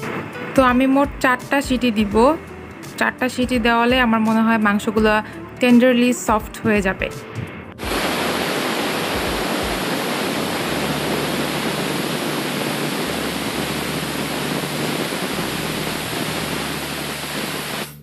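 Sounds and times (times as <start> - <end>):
pressure cooker whistling: 7.8 - 18.0.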